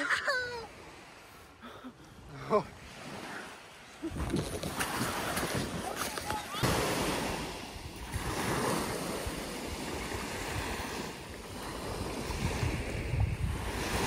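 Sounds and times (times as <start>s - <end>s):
small waves lapping on shore: 0.0s - 14.0s
wind rumbling on microphone: 4.0s - 14.0s.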